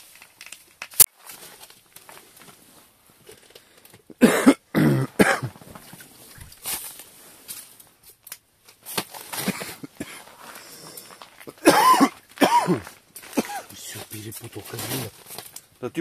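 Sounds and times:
person coughing: 4.1 - 5.6, 9.4 - 10.3, 11.4 - 13.9.

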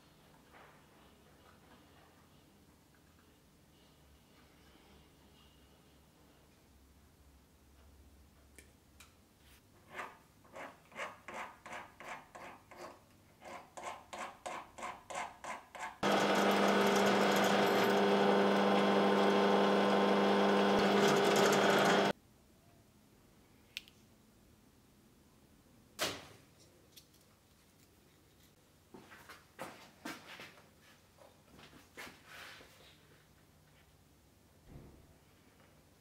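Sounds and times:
small electric drill running: 16.0 - 22.1.

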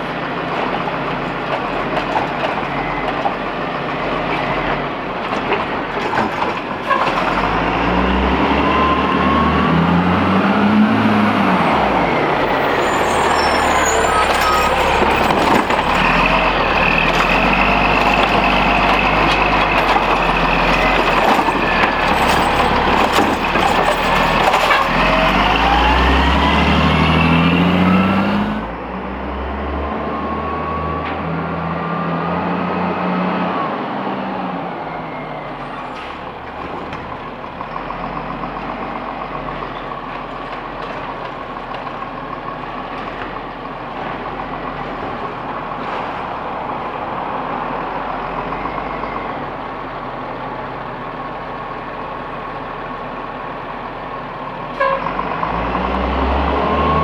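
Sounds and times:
diesel truck engine revving: 0.0 - 54.0, 54.7 - 57.0
metal arm and cart clanking: 12.5 - 25.9.

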